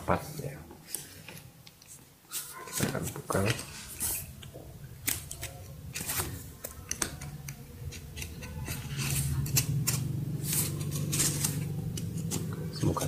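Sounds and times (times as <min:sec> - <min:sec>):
low steady hum: 0:03.6 - 0:13.0
box-cutter scraping packing tape: 0:08.2 - 0:13.0.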